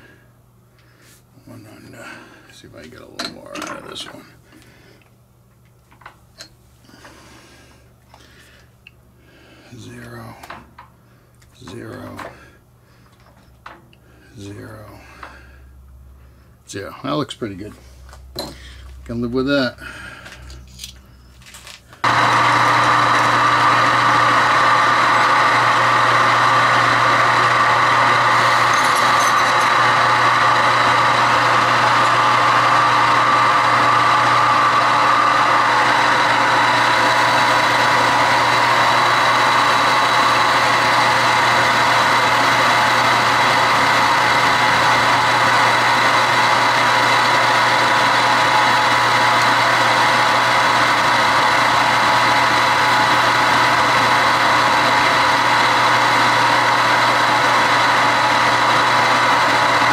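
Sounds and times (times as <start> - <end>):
metal lathe humming and whining: 22.0 - 59.9.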